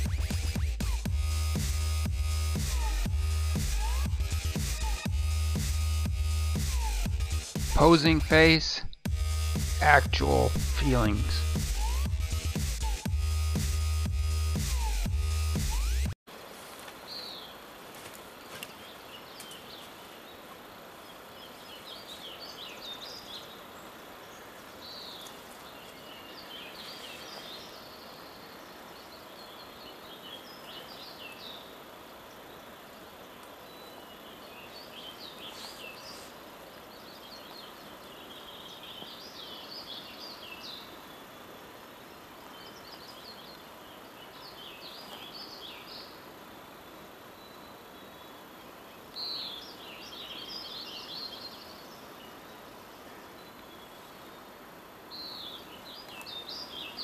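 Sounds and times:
small birds chirping: 9.6 - 13.1, 14.5 - 57.0
steady rushing hiss: 16.3 - 57.0.

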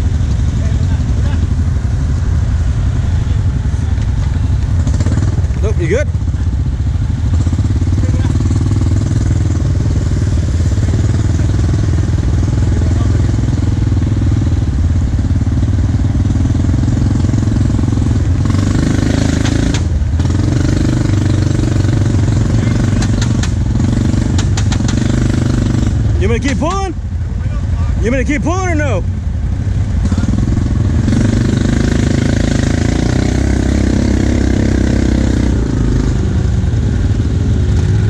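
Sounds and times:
atv engine running under load: 0.0 - 38.0
sharp clicks: 23.0 - 23.6, 24.3 - 25.1.

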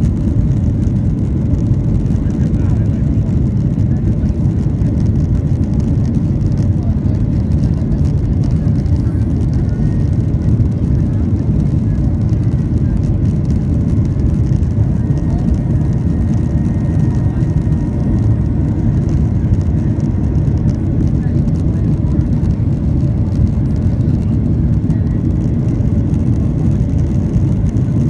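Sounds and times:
jet engines rumbling in cabin: 0.0 - 28.0.

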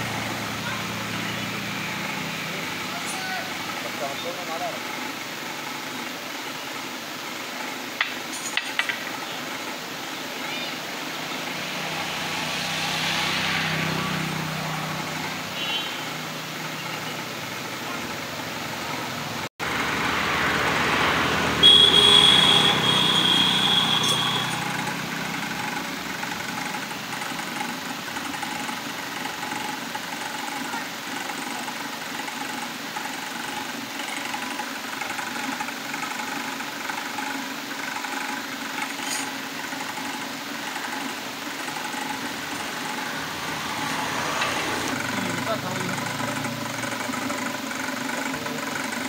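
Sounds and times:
distant vehicles passing: 0.0 - 5.8, 10.8 - 29.6, 40.7 - 49.0
high steady tone: 21.6 - 25.9.

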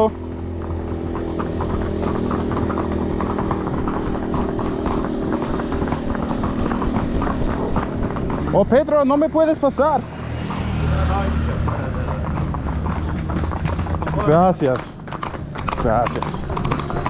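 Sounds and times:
horse hooves clopping on pavement: 0.0 - 17.0
small vehicle engine running: 0.0 - 17.0.

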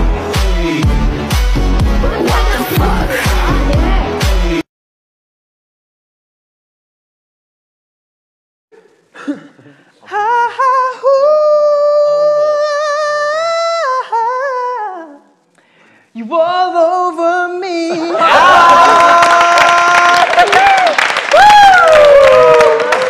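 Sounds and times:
cheering and clapping: 18.2 - 23.0.

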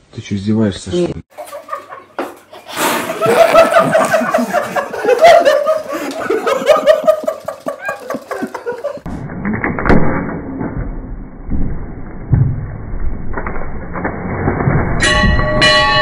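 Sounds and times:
men laughing: 1.3 - 9.1.

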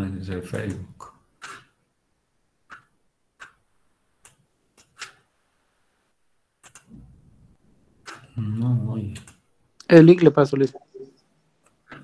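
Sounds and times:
computer mouse clicking: 2.7 - 3.6, 4.2 - 5.2, 6.6 - 6.9, 8.0 - 9.4.

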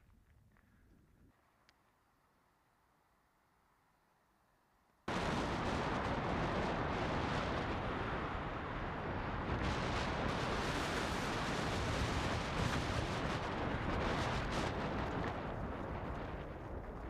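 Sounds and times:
wind buffeting a microphone: 5.1 - 17.0.

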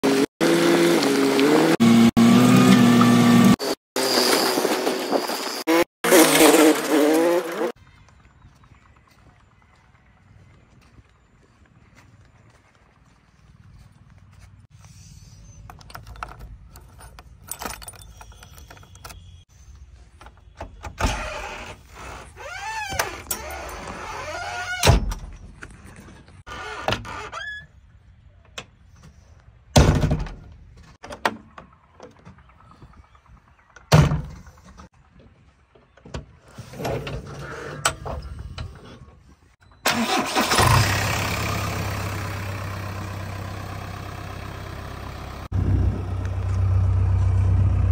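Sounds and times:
diesel engine starting and idling: 39.8 - 47.9.

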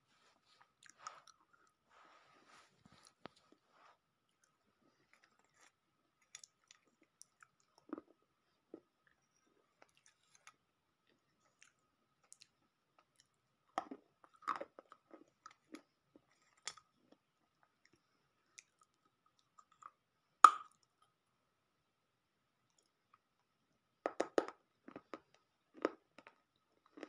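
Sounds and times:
crunchy chewing: 4.3 - 8.2, 24.8 - 27.0.

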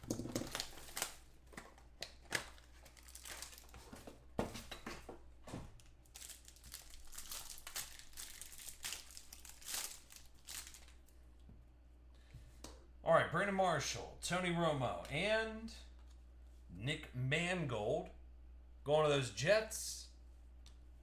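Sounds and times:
wrapper tearing and crinkling: 0.0 - 3.8, 6.0 - 11.0.

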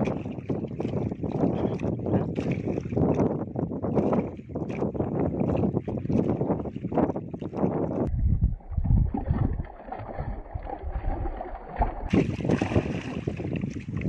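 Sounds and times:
water slapping against boat: 0.0 - 14.0
wind buffeting microphone: 0.0 - 14.0
fish splashing at surface: 9.1 - 13.5.

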